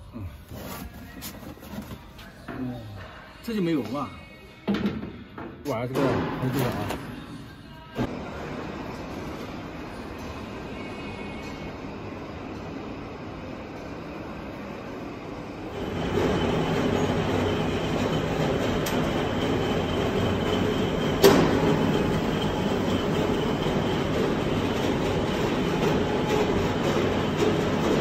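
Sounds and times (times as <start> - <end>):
workshop machinery running: 6.0 - 28.0.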